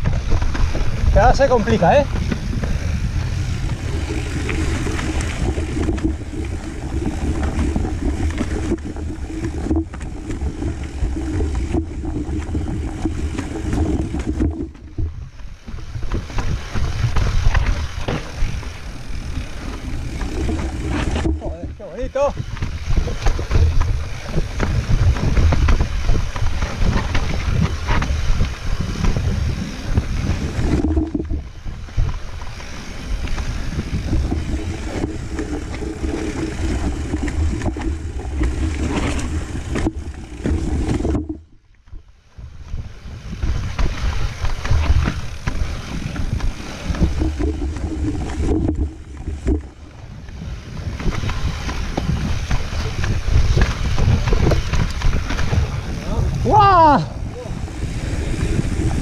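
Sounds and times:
wind buffeting microphone: 0.0 - 41.6, 42.4 - 59.0
mountain bike rattling over rocks: 0.0 - 59.0.

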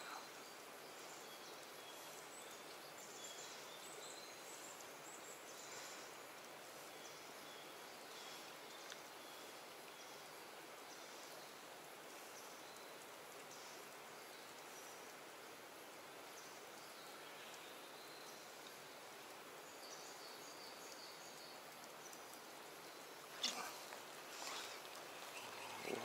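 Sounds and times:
steady low hiss: 0.0 - 26.0.

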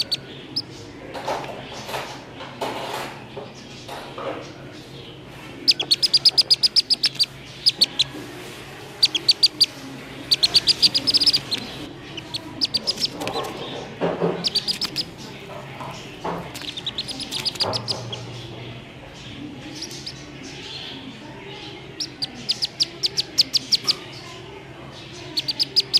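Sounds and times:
duckling distress peeps: 5.6 - 8.2, 8.9 - 13.6, 14.4 - 15.2, 16.5 - 18.3, 19.8 - 20.2, 21.9 - 23.9, 25.4 - 25.9.

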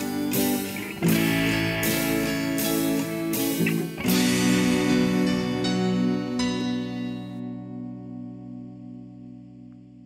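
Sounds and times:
rock guitars playing chords: 0.0 - 10.0.

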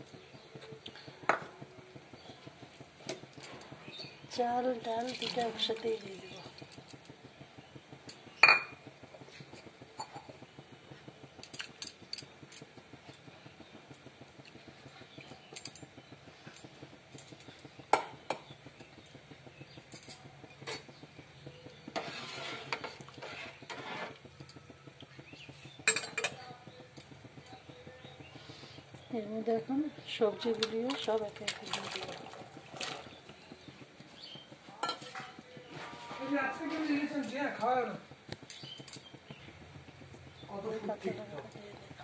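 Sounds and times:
metal pot and utensils clanking: 9.5 - 10.4, 19.8 - 24.6, 25.2 - 28.2, 34.8 - 37.7
rustling scraping noise: 21.9 - 24.3, 35.1 - 37.2.

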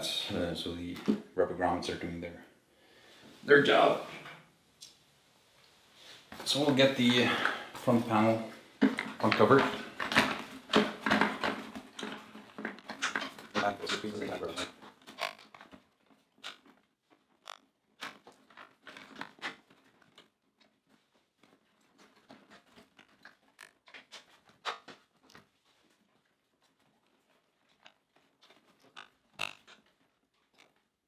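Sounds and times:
plastic clicking and rustling: 8.8 - 25.5.

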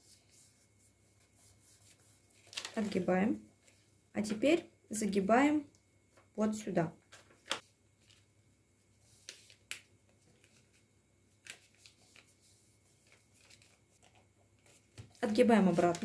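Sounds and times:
paper folding and crackling: 2.3 - 3.8, 7.1 - 8.3, 9.1 - 16.0.

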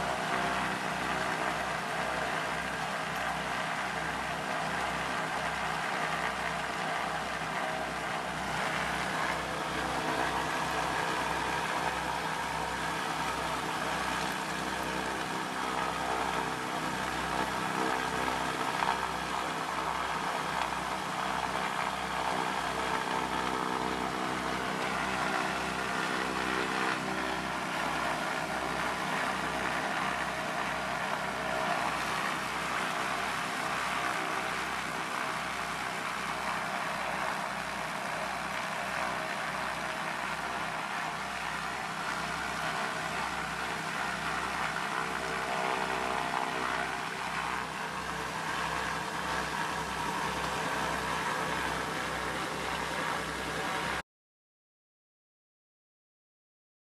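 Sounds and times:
aircraft piston engines running: 0.0 - 54.0.

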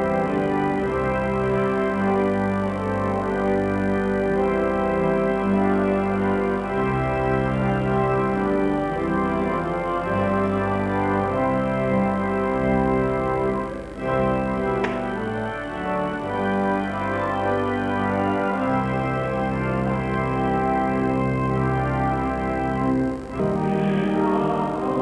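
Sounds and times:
church organ chords: 0.0 - 25.0
brief click: 14.7 - 15.2.

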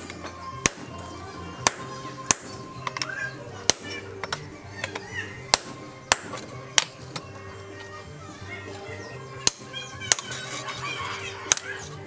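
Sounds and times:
hammer striking chisel on steel: 0.0 - 7.3, 9.4 - 10.8.

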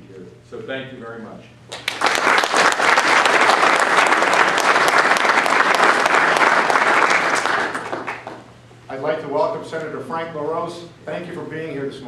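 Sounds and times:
audience applauding: 1.7 - 8.5.

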